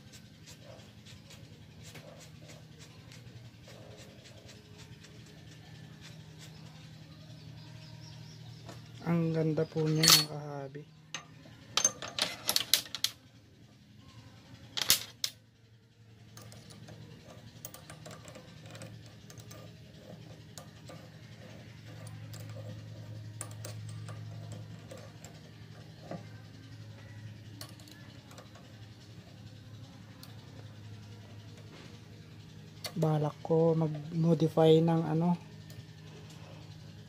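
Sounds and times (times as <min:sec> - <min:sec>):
low hum: 0:00.0 - 0:37.0
metal clatter: 0:09.8 - 0:10.4
hex key clinking on bolts: 0:09.8 - 0:10.5, 0:16.2 - 0:31.7.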